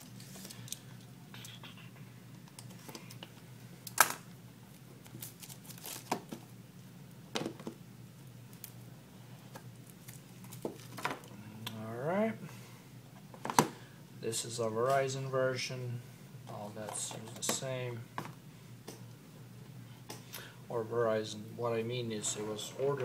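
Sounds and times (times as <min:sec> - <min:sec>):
steady low hum: 0:00.0 - 0:23.0
plastic wrap crinkling: 0:05.0 - 0:06.4.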